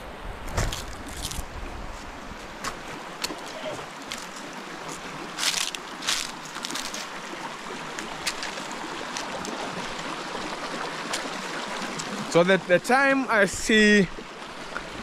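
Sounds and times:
stream trickling over rocks: 0.5s - 15.0s
sugarcane crunching being chewed: 0.6s - 1.5s, 3.2s - 7.2s, 8.0s - 9.5s.

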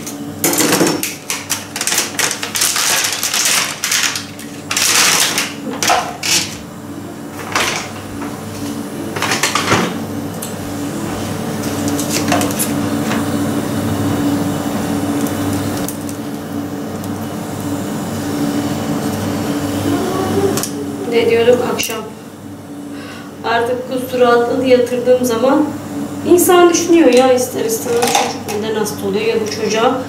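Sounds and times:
nebulizer motor humming: 3.4s - 23.8s.

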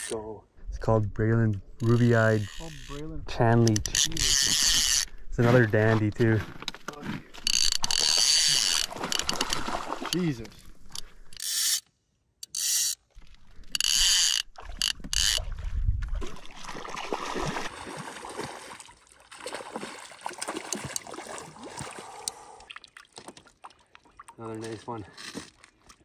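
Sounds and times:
fishing reel drag ratcheting: 1.8s - 5.1s, 7.4s - 9.7s, 10.8s - 15.4s
water splashing: 7.3s - 11.0s, 14.2s - 26.0s.

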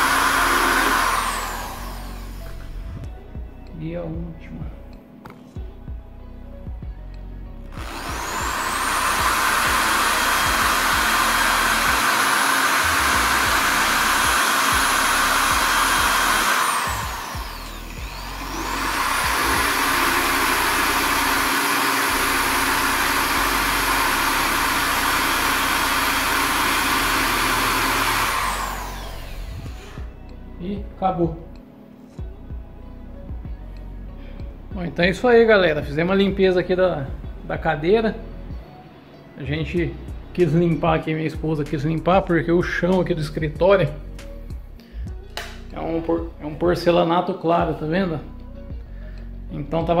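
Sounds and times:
electric drill whining: 0.0s - 3.3s, 7.7s - 30.4s.

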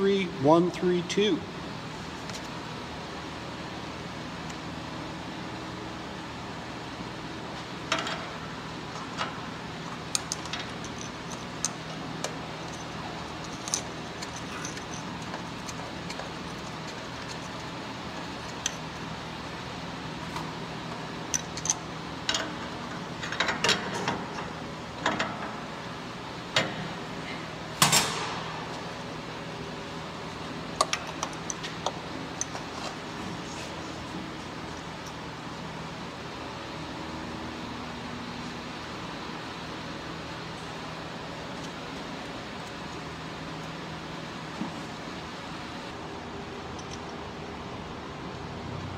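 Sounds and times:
steady low hum: 0.0s - 48.9s.

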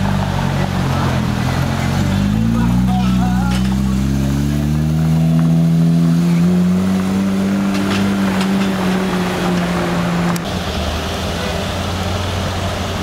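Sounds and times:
car engine pulling away: 0.0s - 13.0s.

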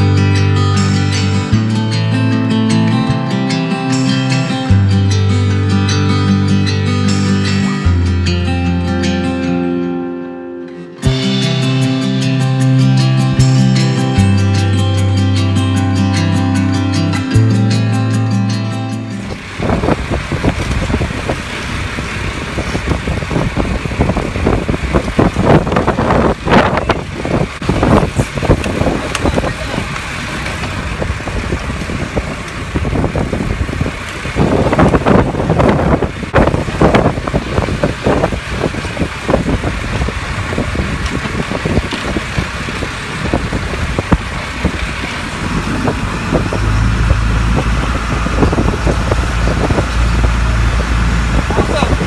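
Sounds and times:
boat engine hum: 0.0s - 52.0s
water rushing along hull: 11.0s - 52.0s
wind buffeting microphone: 19.1s - 52.0s.

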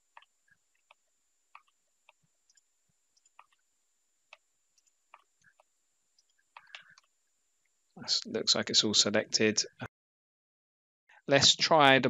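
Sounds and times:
computer mouse clicks: 1.6s - 2.6s, 3.2s - 3.6s, 4.3s - 7.1s.

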